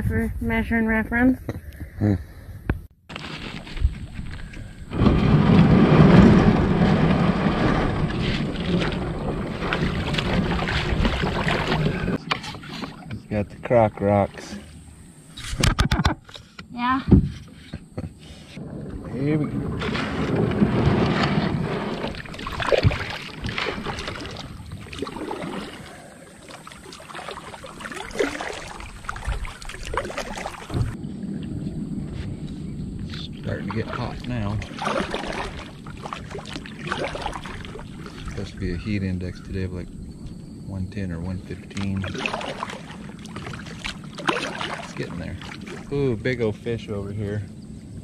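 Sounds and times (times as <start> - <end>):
kayak hull scraping over gravel: 3.1 - 13.0, 17.3 - 32.7
paddle splashing in water: 3.1 - 13.2, 18.3 - 31.6, 33.6 - 38.5, 41.5 - 46.3.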